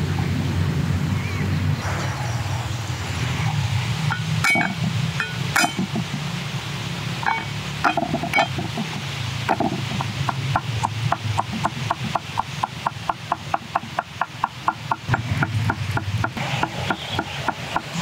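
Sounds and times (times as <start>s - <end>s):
steady low hum: 0.0s - 12.7s
utensil clinking against pot: 4.1s - 6.2s, 7.2s - 11.3s.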